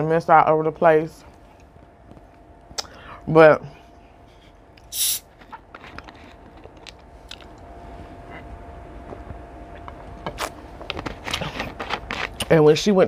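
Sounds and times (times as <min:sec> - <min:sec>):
person chewing food: 0:05.5 - 0:08.5.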